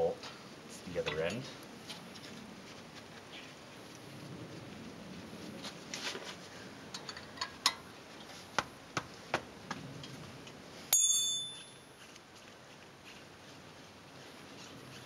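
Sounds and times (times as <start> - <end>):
metal tool ringing clink: 10.9 - 11.9.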